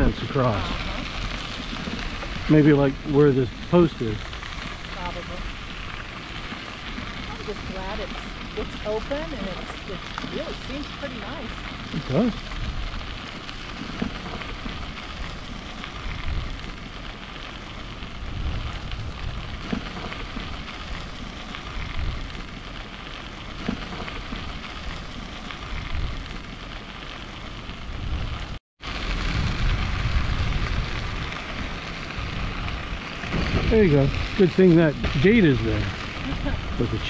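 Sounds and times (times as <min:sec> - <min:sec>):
bicycle tyre noise on trail: 0:00.0 - 0:37.0
wind buffeting microphone: 0:00.0 - 0:37.0.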